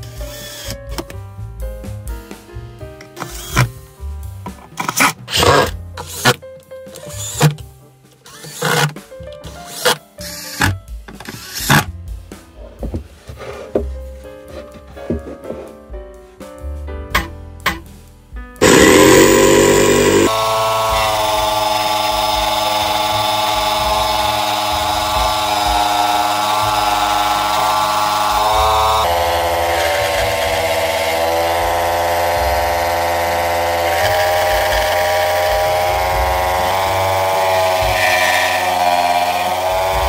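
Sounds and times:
jigsaw cutting wood: 4.9 - 6.4, 8.3 - 9.0, 18.6 - 40.0.

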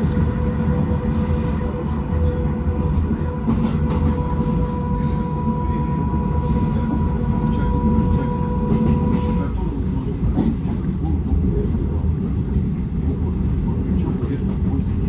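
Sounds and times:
constant high whine: 0.0 - 10.1
train wheels rumbling on rails: 0.0 - 15.0.

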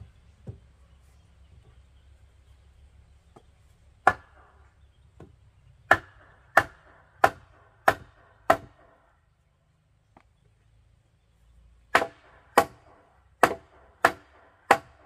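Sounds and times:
wood knocking on wooden post: 0.4 - 0.7, 5.2 - 8.7.

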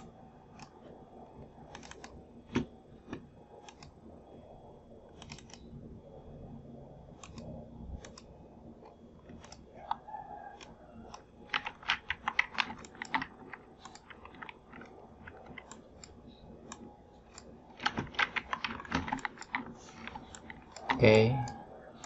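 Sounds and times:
keyboard keys tapping: 10.6 - 22.0.

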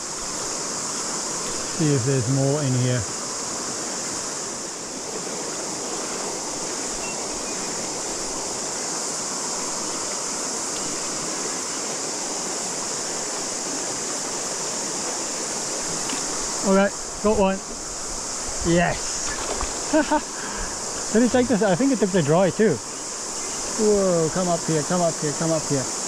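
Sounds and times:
cicadas chorus: 0.0 - 26.0
river water rushing over stones: 0.0 - 26.0.

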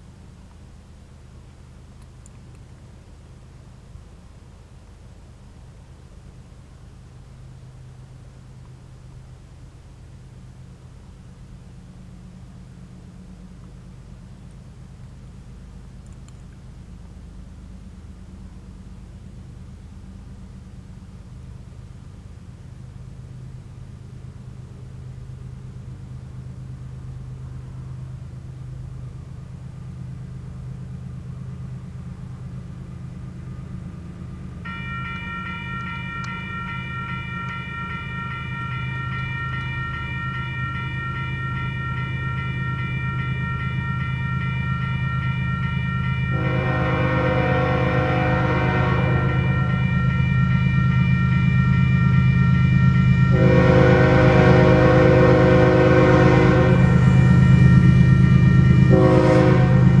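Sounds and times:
train rumble: 0.0 - 60.0
level crossing warning bell: 34.6 - 60.0
locomotive air horn blasts: 46.3 - 51.1, 53.0 - 60.0.

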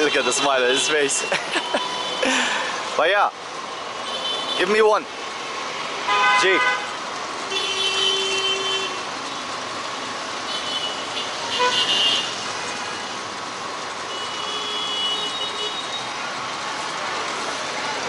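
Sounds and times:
busy street traffic: 0.0 - 18.0
vehicle horns tooting: 4.0 - 4.7, 6.0 - 9.1, 10.5 - 12.9, 14.1 - 16.1.

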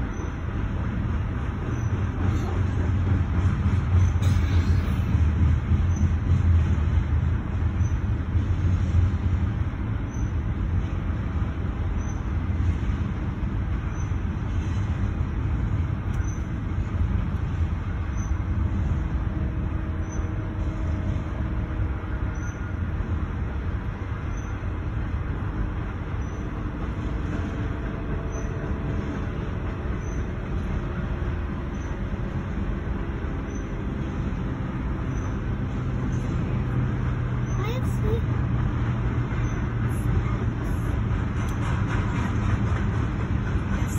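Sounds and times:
freight train cars rumbling: 0.0 - 43.9.

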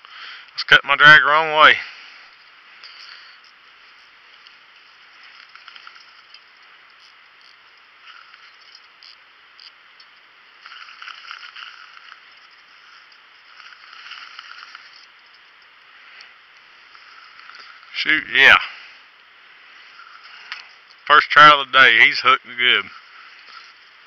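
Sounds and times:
fishing reel ratcheting: 2.3 - 18.0, 19.8 - 21.1, 22.8 - 24.0.

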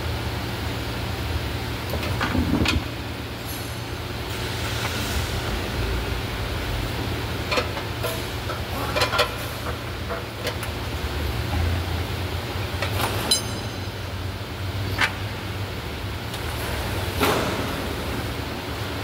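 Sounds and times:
workshop hum: 0.0 - 19.0
metallic clinks and knocks: 13.0 - 14.0.

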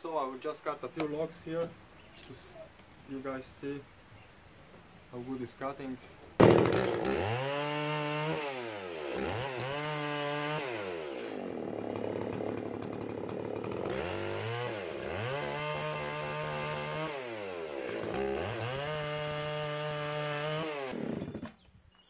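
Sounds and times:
chainsaw revving: 6.4 - 21.6
chainsaw cutting log: 6.4 - 21.7.

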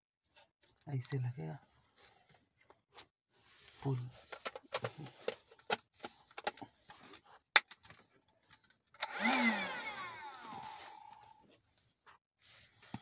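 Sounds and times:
small vacuum motor whine: 9.0 - 11.4.

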